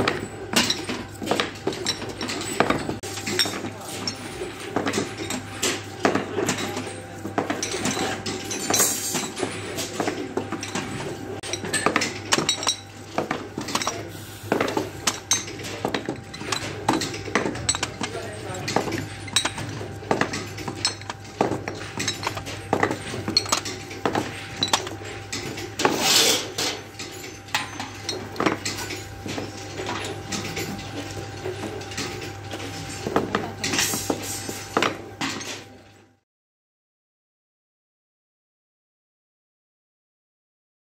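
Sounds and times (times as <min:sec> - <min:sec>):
glass bottles clinking: 0:00.0 - 0:33.9.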